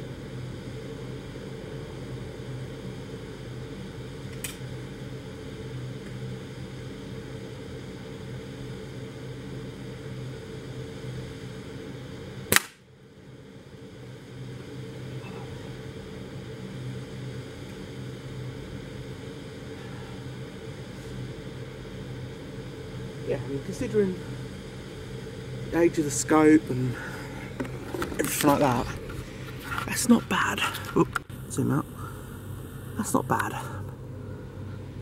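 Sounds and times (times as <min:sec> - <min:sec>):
steady low hum: 0:00.0 - 0:35.0
air rifle shot: 0:12.5 - 0:12.8.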